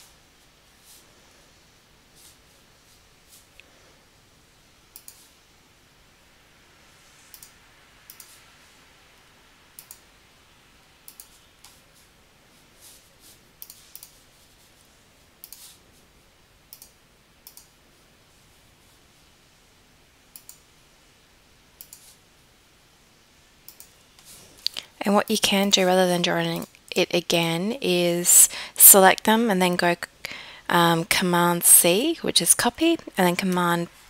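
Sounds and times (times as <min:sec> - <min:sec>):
light hiss: 0:00.0 - 0:25.0
computer mouse clicks: 0:04.9 - 0:05.3, 0:07.3 - 0:08.4, 0:09.8 - 0:10.1, 0:11.0 - 0:11.8, 0:13.6 - 0:14.2, 0:15.4 - 0:15.8, 0:16.7 - 0:17.8, 0:20.3 - 0:20.7, 0:21.8 - 0:22.2, 0:23.6 - 0:24.9.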